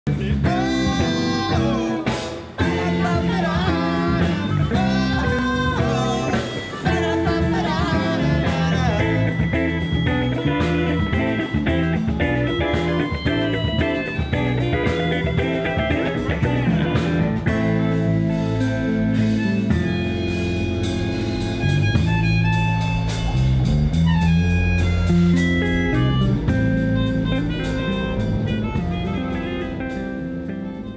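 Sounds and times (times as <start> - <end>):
guitar: 0.0 - 30.9
drum kit beat: 0.1 - 30.9
live rock band playing: 0.1 - 30.9
women singing: 0.4 - 9.3.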